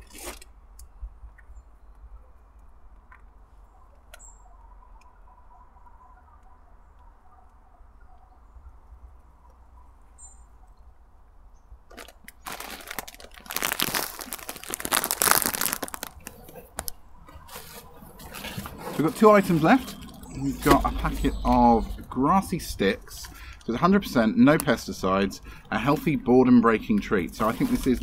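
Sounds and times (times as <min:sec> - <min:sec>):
faint bird chirps: 0:03.6 - 0:11.7
packaging rustling and crinkling: 0:11.9 - 0:21.3, 0:27.4 - 0:28.0.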